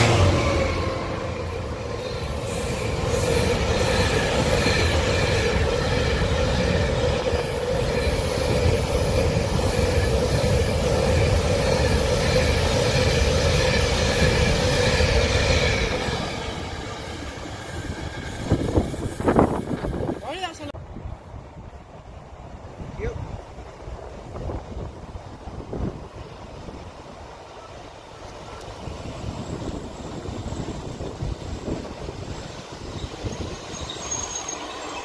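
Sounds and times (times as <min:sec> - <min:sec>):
train wheels on rails: 0:00.0 - 0:20.8, 0:23.3 - 0:35.0
steady squealing tone: 0:32.8 - 0:35.0.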